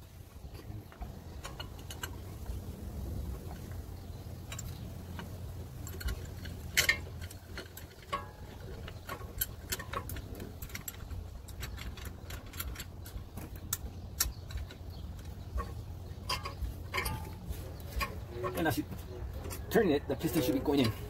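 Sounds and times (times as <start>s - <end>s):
steady low rumble: 0.0s - 21.0s
small metallic clicks and ticks: 0.4s - 21.0s
metal clatter: 0.5s - 2.6s, 3.3s - 21.0s.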